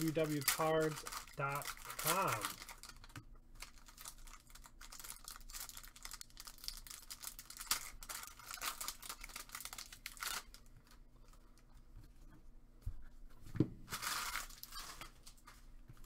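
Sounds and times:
foil wrapper tearing and crinkling: 0.0s - 11.0s, 13.9s - 15.4s.

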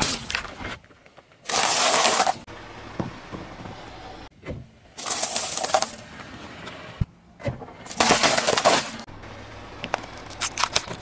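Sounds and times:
car tyre rolling: 0.0s - 11.0s
plastic cups crackling under tyre: 9.7s - 11.0s.

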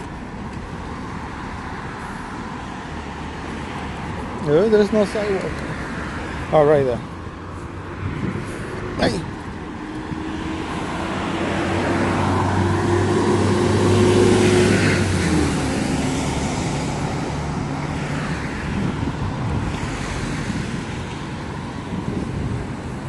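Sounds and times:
steady traffic noise: 0.0s - 23.0s
car driving past: 9.8s - 18.6s.

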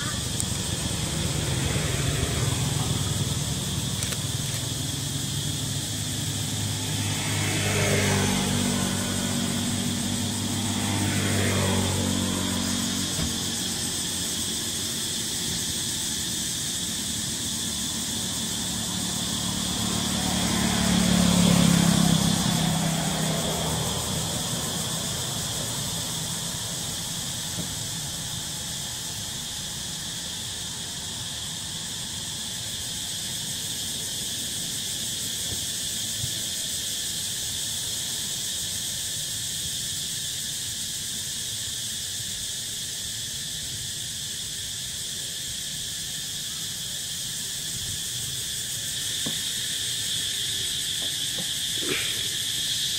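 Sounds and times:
vehicle passing: 0.0s - 38.2s, 48.0s - 52.9s
high-pitched insect drone: 0.0s - 52.9s.

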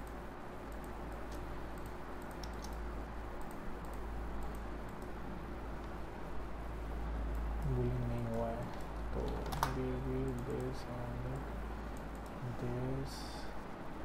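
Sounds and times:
keyboard and mouse clicks: 0.0s - 2.8s, 8.7s - 10.8s
steady low hum: 0.0s - 14.0s.

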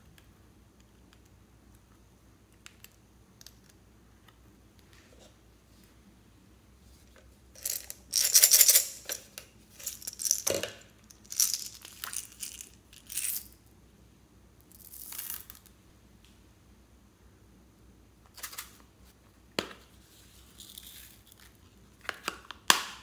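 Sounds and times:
plastic beads rattling into bowl: 7.6s - 13.6s.

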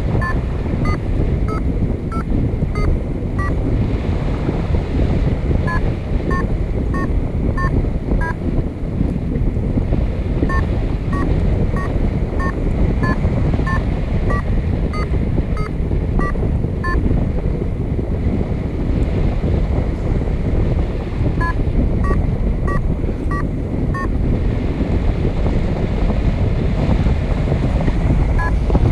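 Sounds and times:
variometer beeping: 0.0s - 3.6s, 5.6s - 8.4s, 10.4s - 17.1s, 21.4s - 24.2s, 28.4s - 28.7s
wind rushing over microphone: 0.0s - 28.9s.

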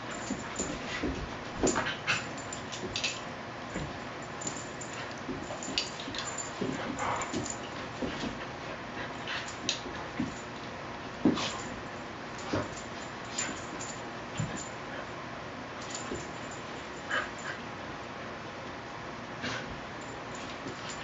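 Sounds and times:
dogs scuffling: 0.0s - 15.1s.

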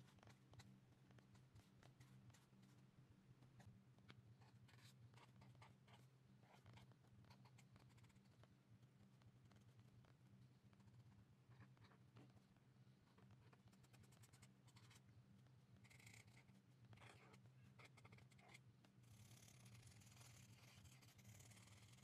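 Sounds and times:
marker scratching on paper: 19.2s - 21.9s.

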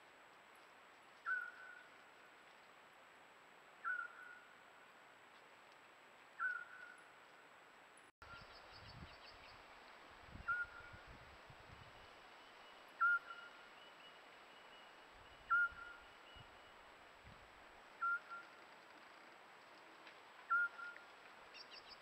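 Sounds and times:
owl whistled call: 1.2s - 1.9s, 3.8s - 4.5s, 6.4s - 7.0s, 10.4s - 11.0s, 13.0s - 13.9s, 15.4s - 16.5s, 18.0s - 18.6s, 20.5s - 21.0s.

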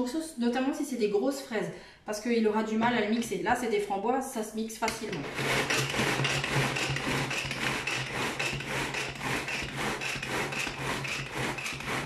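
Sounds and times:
pull-cord food chopper grinding: 4.9s - 12.0s.

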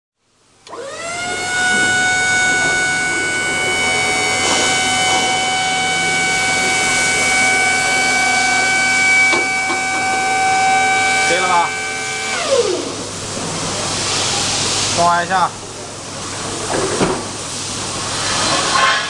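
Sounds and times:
hydraulic pump motor whine: 0.6s - 13.3s.

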